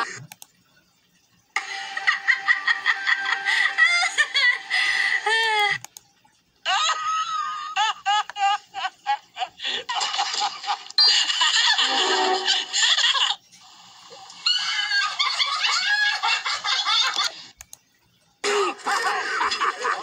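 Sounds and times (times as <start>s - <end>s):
cartoon characters laughing: 1.6s - 5.8s, 6.7s - 13.4s, 14.4s - 17.5s, 18.4s - 20.0s.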